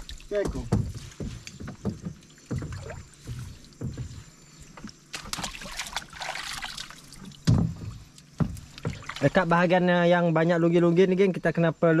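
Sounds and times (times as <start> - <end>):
muddy water splashing: 0.0 - 9.8
dull knocks: 0.4 - 5.5, 7.4 - 9.5.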